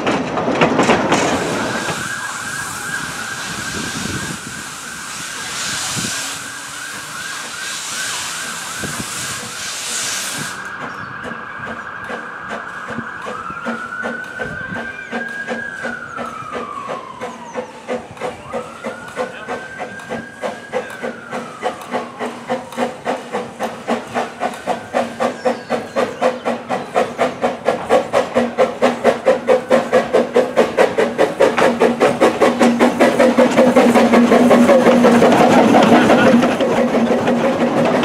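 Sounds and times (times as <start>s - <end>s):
steam locomotive chuffing: 0.0s - 38.0s
steady hiss of steam: 1.3s - 10.7s, 17.8s - 38.0s.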